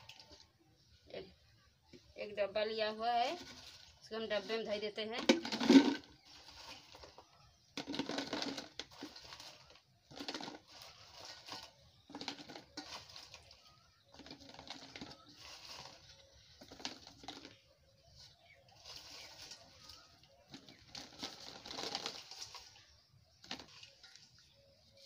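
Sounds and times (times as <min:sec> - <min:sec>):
fruit pieces rattling into plastic jar: 0:05.2 - 0:07.2, 0:07.8 - 0:17.6, 0:18.8 - 0:24.0.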